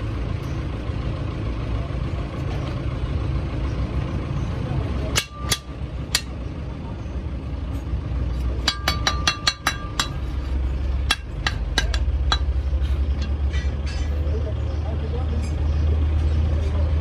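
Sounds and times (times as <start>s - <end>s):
idling engine rumble: 0.0s - 17.0s
hammer striking steel: 5.1s - 6.4s, 8.4s - 14.3s.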